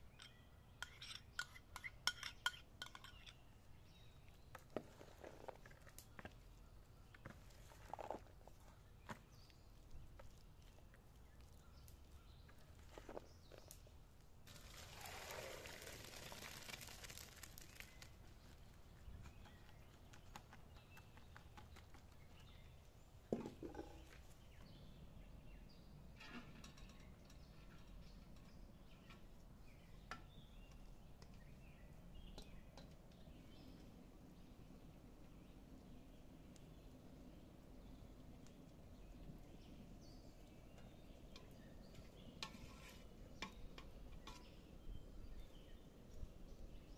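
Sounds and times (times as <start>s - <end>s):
water pouring into a colander: 14.5s - 17.9s.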